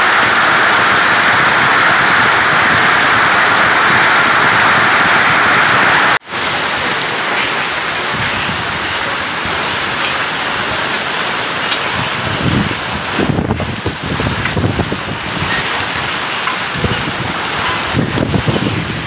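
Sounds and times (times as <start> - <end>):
heavy hail pelting down: 0.0 - 19.0.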